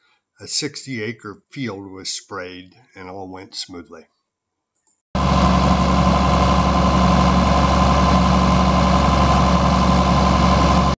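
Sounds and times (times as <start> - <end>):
steady high whine: 5.2 - 11.0
tractor diesel engine running: 5.2 - 11.0.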